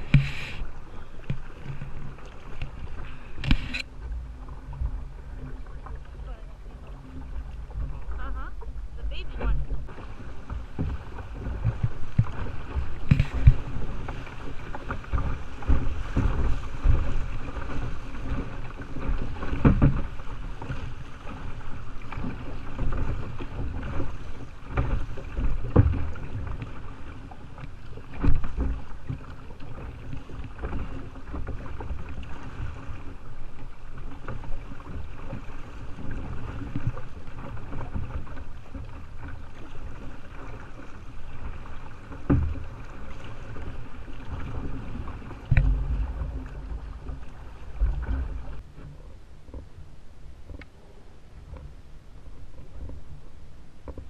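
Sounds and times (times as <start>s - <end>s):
water splashing against kayak hull: 0.0s - 54.0s
steady low rumble: 3.1s - 11.7s, 45.2s - 53.8s.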